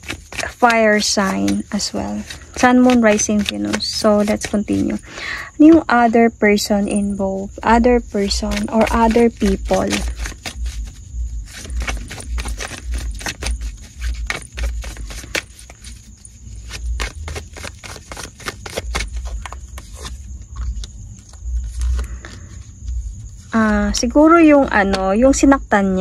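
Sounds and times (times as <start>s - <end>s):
cards shuffled by hand: 0.0s - 5.1s, 7.0s - 22.6s
hand bumping card deck: 0.0s - 6.1s, 7.0s - 20.8s.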